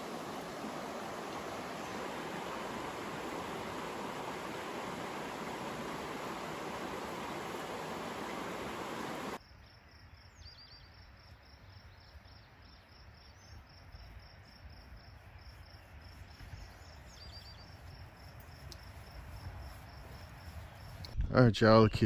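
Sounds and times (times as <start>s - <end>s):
rushing creek water: 0.0s - 9.4s
insect chirping: 0.0s - 12.0s, 12.7s - 21.1s.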